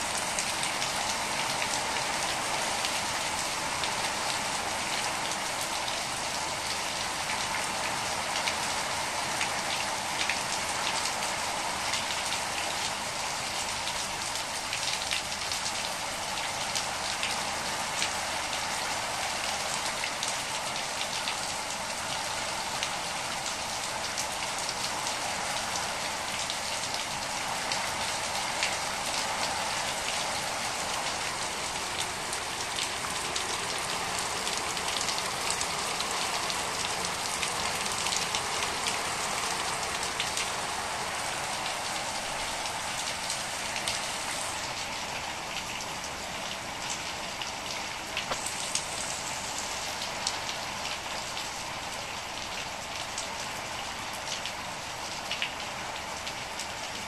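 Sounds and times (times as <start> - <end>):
heavy rain on wet ground: 0.0 - 57.0.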